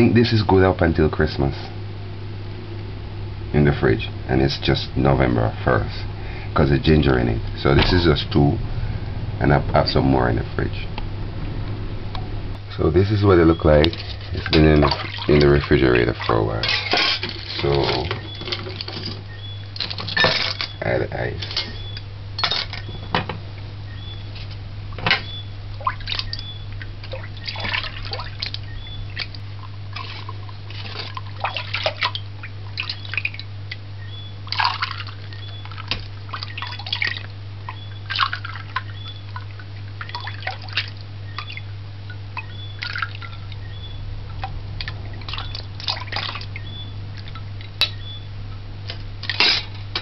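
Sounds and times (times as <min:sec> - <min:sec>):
low hum: 0:00.0 - 0:50.0
liquid sloshing and dripping: 0:13.6 - 0:23.2, 0:24.4 - 0:48.1.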